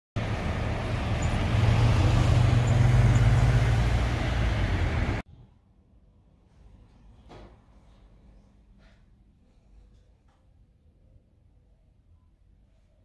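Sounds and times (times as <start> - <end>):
vehicle passing close by: 0.2 - 5.2
road traffic rumble: 0.2 - 5.3.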